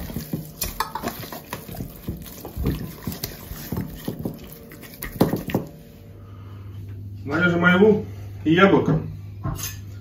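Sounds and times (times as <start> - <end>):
wet squelches and slaps: 0.0 - 5.8.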